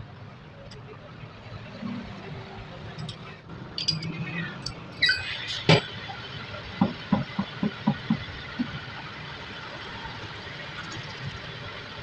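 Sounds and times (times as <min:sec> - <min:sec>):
sharp metallic clinks: 0:03.8 - 0:05.3.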